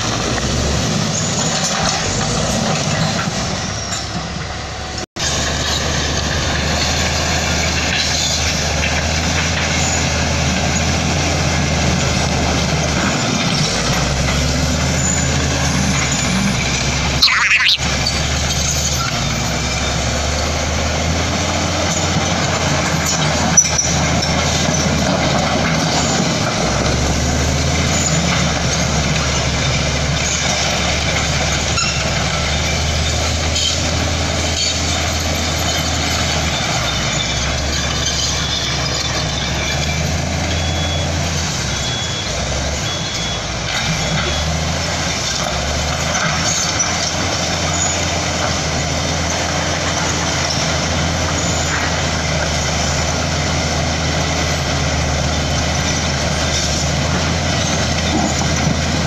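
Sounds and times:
bulldozer diesel engine running: 0:00.0 - 0:59.0
reversing alarm beeping: 0:15.0 - 0:18.1, 0:38.3 - 0:45.0.

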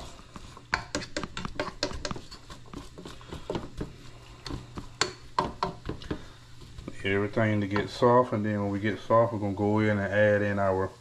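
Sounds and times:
spoon scraping vegetables in pot: 0:00.0 - 0:08.0.

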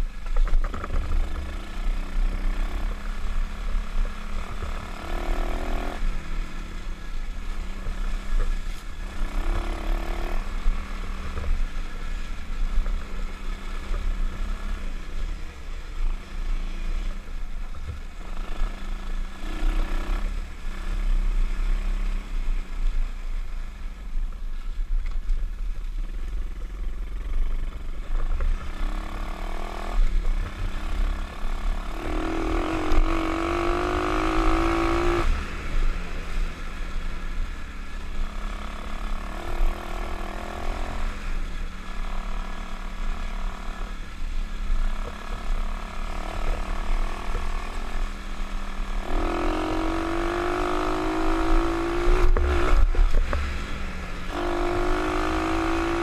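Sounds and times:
motorbike engine revving: 0:00.0 - 0:15.4, 0:28.4 - 0:37.4, 0:38.2 - 0:56.0.

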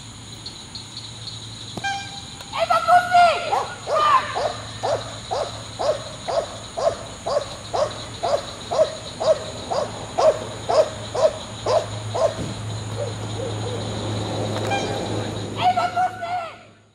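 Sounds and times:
dog barking: 0:03.4 - 0:13.8.

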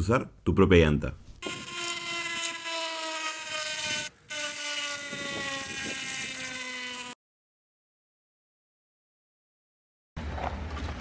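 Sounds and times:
rubber buzzing on spinning tyre: 0:01.4 - 0:07.2.

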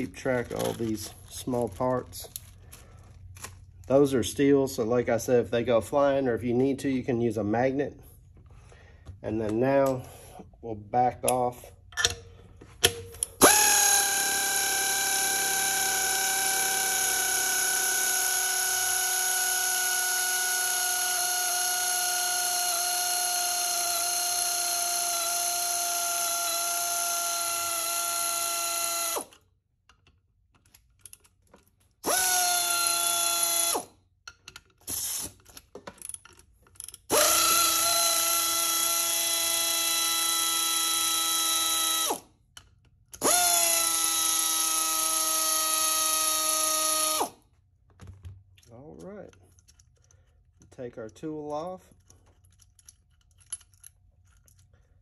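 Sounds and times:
air ratchet whining: 0:12.8 - 0:30.0, 0:32.0 - 0:47.4.

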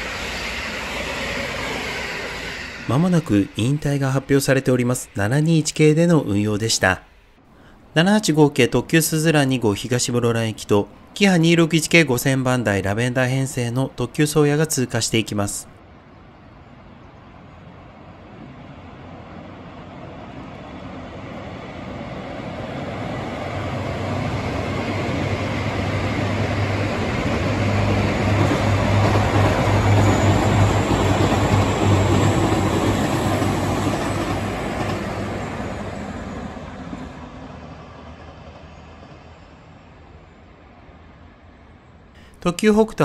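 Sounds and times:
train passing by: 0:00.0 - 0:43.0.

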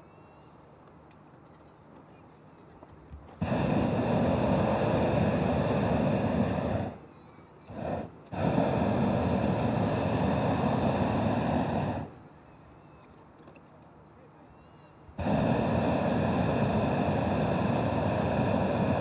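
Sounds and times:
propane burner blasts: 0:03.2 - 0:12.4, 0:15.0 - 0:19.0.

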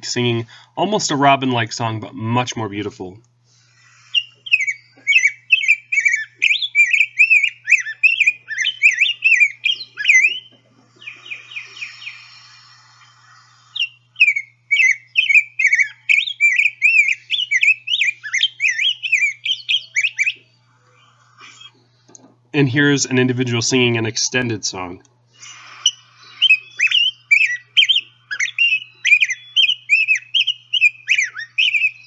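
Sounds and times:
bird warbling whistled song: 0:03.7 - 0:21.8, 0:25.4 - 0:32.0.

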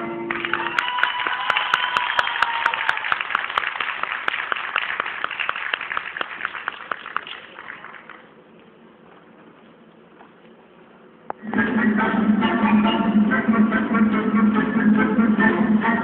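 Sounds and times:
sharp regular claps: 0:00.3 - 0:08.2
audience applause: 0:00.3 - 0:08.3
held high tone: 0:11.4 - 0:16.0.

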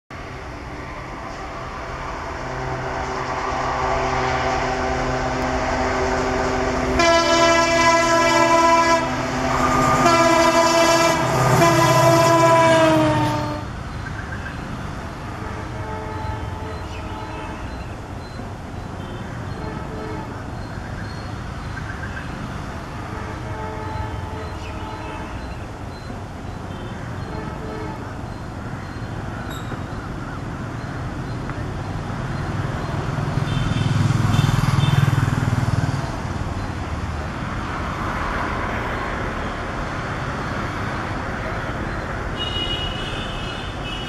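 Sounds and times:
diesel locomotive engine rumbling: 0:00.1 - 0:44.0
locomotive horn blasts: 0:04.4 - 0:13.7, 0:15.4 - 0:17.6, 0:19.5 - 0:20.4, 0:23.0 - 0:25.5, 0:27.2 - 0:28.1, 0:42.4 - 0:44.0.

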